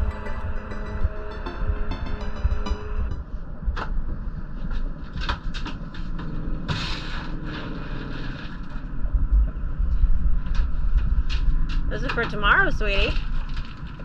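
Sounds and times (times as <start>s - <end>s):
wind rumbling on microphone: 3.2s - 14.0s.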